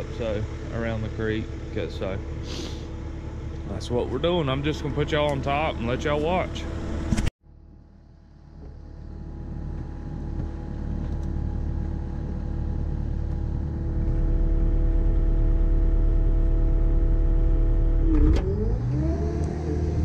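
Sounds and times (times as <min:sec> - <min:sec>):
excavator diesel engine rumbling: 0:00.0 - 0:20.0.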